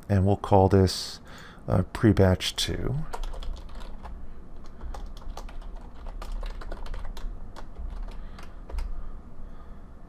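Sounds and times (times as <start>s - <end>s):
low steady hum: 0.0s - 10.0s
keyboard typing clicks: 3.1s - 8.9s.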